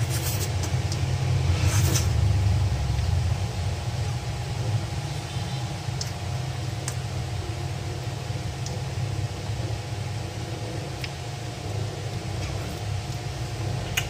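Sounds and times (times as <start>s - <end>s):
low rumble: 0.6s - 7.9s.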